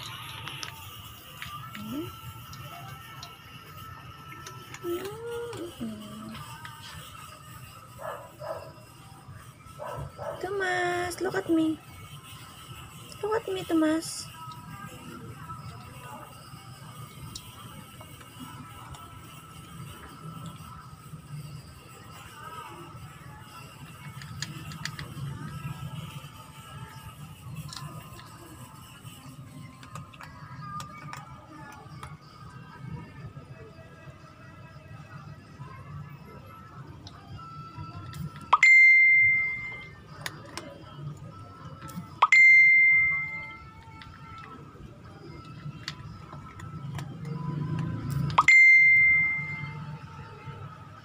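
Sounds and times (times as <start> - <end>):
dog crunching dry kibble: 0.0 - 3.4, 24.0 - 25.6, 29.7 - 32.2
cat crunching dry kibble: 0.0 - 6.8, 23.4 - 28.3, 29.0 - 31.3, 45.4 - 48.3.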